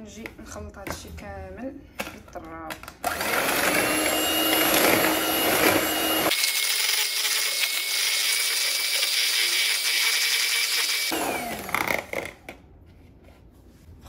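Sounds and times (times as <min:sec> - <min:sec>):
electric hand mixer whisking: 0:03.1 - 0:12.4.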